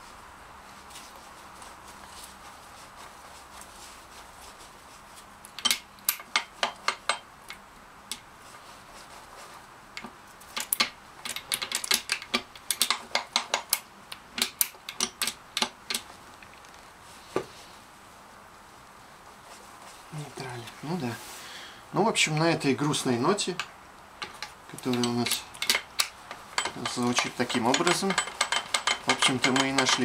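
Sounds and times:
man speaking: 0:20.1 - 0:21.3, 0:21.9 - 0:23.6, 0:26.8 - 0:28.2
gears clicking and clattering: 0:24.2 - 0:30.0.

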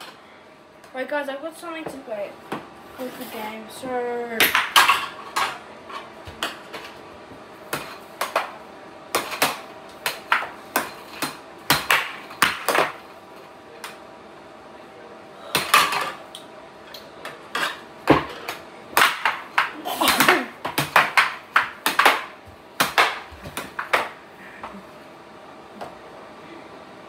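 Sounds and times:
air hockey puck clacking: 0:07.7 - 0:08.6, 0:09.2 - 0:13.0, 0:17.2 - 0:24.2.

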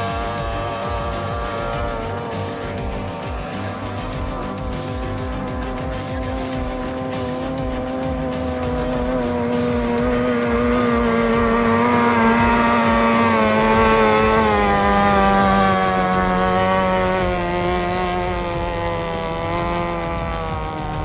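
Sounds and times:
racing boat engine high whine: 0:00.0 - 0:21.0.

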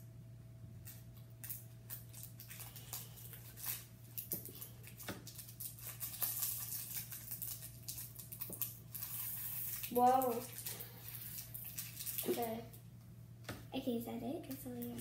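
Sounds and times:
plastic bag crinkling: 0:00.8 - 0:12.7.

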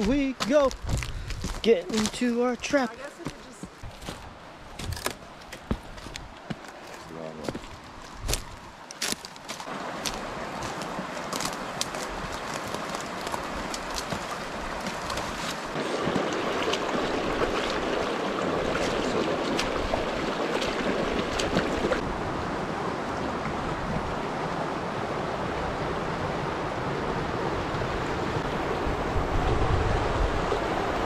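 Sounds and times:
footsteps through dry brush: 0:00.0 - 0:02.2, 0:02.9 - 0:15.7
river rushing over rocks: 0:09.4 - 0:31.0.

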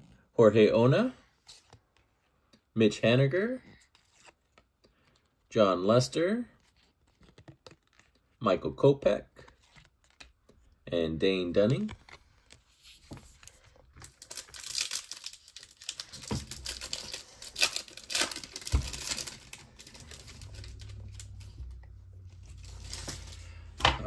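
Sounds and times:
foil wrapper tearing and crinkling: 0:14.0 - 0:21.5.

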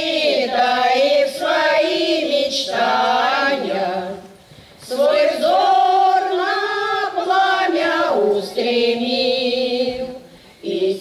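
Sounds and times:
women's choir singing: 0:00.0 - 0:11.0.

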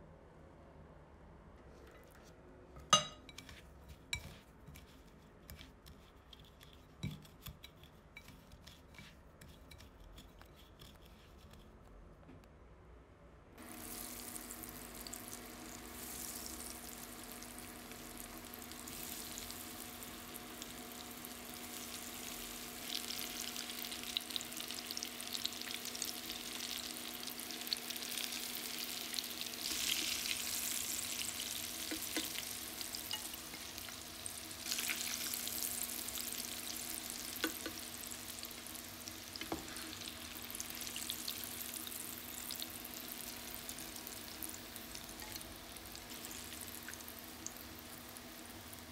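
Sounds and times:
food deep-frying in oil: 0:13.6 - 0:48.9.

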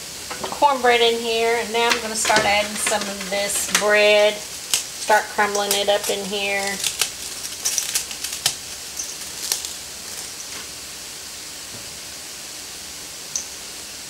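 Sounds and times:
background hiss: 0:00.0 - 0:14.0
dry bread crumbling: 0:01.6 - 0:10.7.

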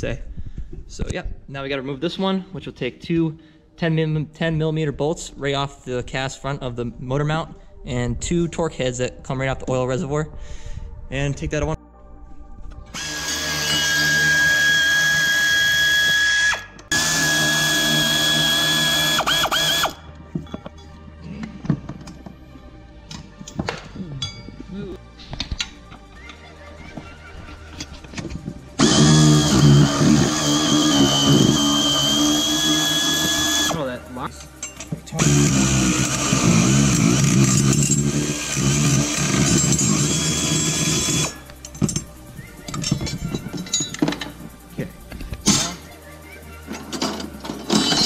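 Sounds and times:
air ratchet whining: 0:12.9 - 0:20.0, 0:28.8 - 0:46.0
pneumatic wrench running: 0:13.0 - 0:20.0, 0:28.8 - 0:33.8, 0:35.2 - 0:42.0
faint metal clinks: 0:24.1 - 0:24.7.

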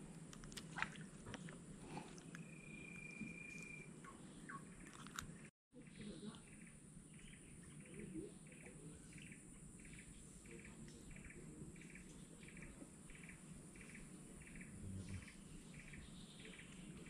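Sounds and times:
short pulsed chirping: 0:02.4 - 0:05.1.

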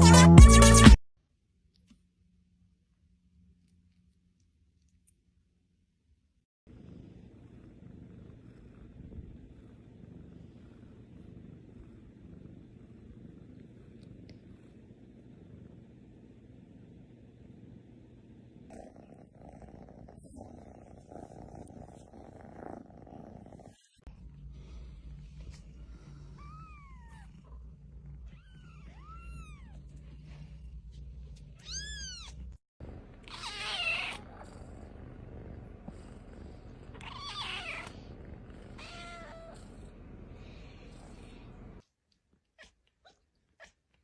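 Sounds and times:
steady low hum: 0:06.7 - 0:33.3, 0:37.8 - 0:41.8
cats meowing: 0:33.2 - 0:34.4, 0:36.9 - 0:38.0, 0:38.8 - 0:39.6.

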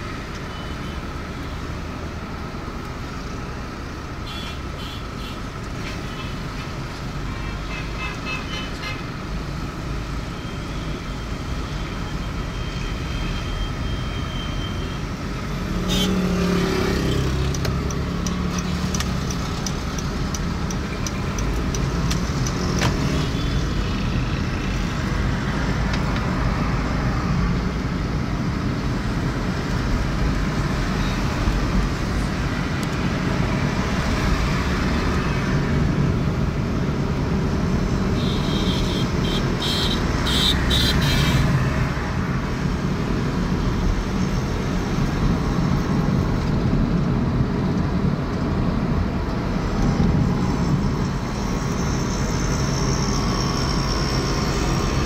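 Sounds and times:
car engine and road noise: 0:00.0 - 0:55.0
passing traffic: 0:00.0 - 0:55.0.

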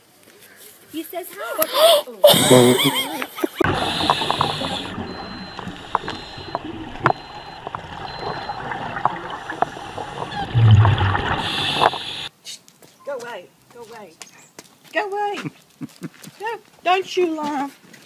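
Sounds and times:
underwater bubbles rushing: 0:03.6 - 0:12.3
underwater clicks: 0:03.6 - 0:12.3.

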